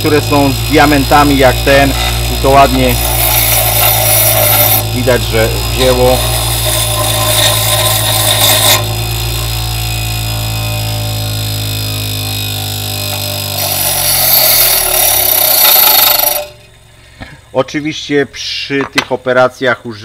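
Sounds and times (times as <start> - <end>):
dresser scraping grinding wheel: 0.0 - 16.8
grinder motor winding down: 0.0 - 17.0.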